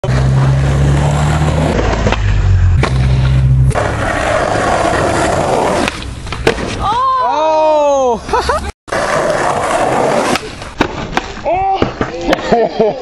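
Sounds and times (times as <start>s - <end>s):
low hum: 0.0s - 5.6s
skateboard wheels rolling on asphalt: 0.0s - 6.9s, 8.9s - 11.4s.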